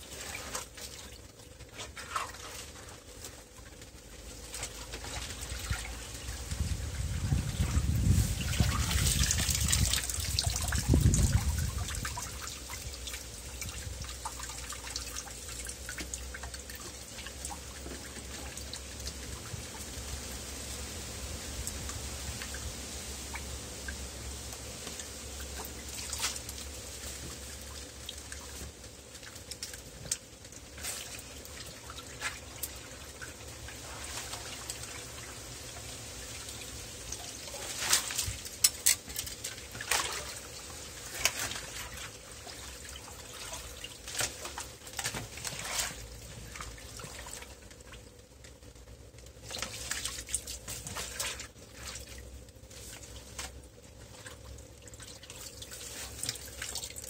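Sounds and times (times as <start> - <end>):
small splashes: 0.0 - 20.3, 24.8 - 57.0
water trickling and dripping: 0.0 - 57.0.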